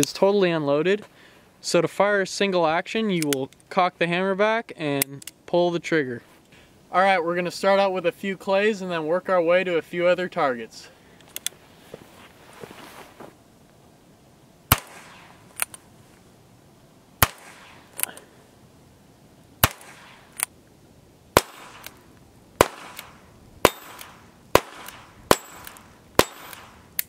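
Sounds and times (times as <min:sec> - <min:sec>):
revolver gunshots: 0:14.7 - 0:15.4, 0:17.2 - 0:18.2, 0:19.6 - 0:20.4, 0:21.4 - 0:22.0, 0:22.6 - 0:27.0.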